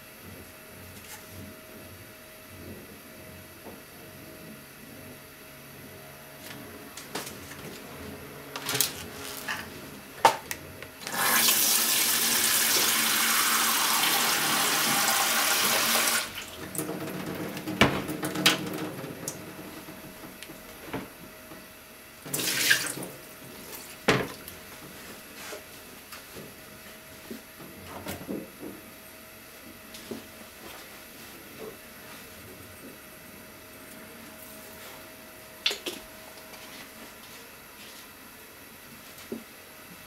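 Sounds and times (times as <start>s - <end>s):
tap water running into container: 11.1s - 16.9s.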